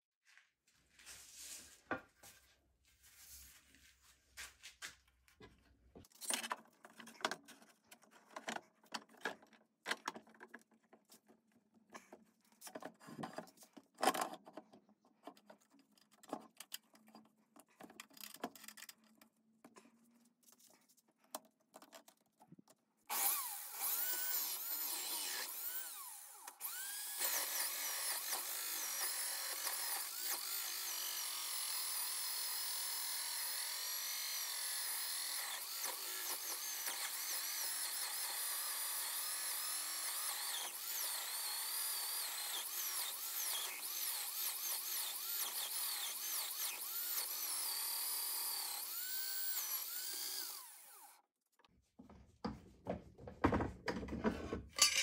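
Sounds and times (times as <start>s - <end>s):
high-speed power tool whine: 23.1s - 51.2s.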